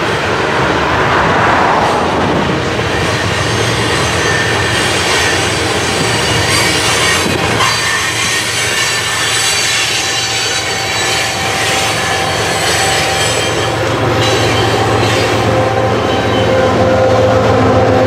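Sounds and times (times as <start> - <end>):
diesel locomotive engine hum: 0.0 - 18.0
train cars rolling on rails: 0.0 - 18.0
wheel squeal: 3.0 - 16.7.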